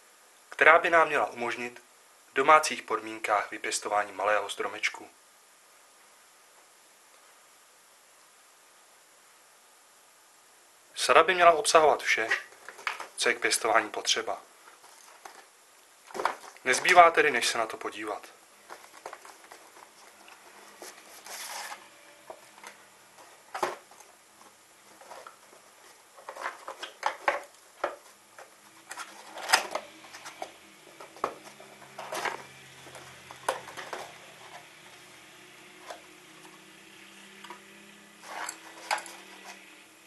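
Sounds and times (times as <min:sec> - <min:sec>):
fibre pots handled: 0:18.6 - 0:34.7
cardboard box scraping and rustling: 0:18.8 - 0:22.5.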